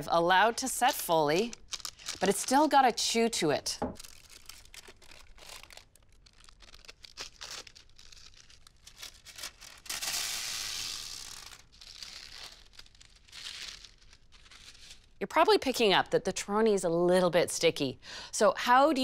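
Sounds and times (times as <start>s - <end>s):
paper rustling and crinkling: 0.9s - 2.7s, 4.0s - 15.1s
paper peeling off sticky food: 0.9s - 2.8s, 4.0s - 15.2s.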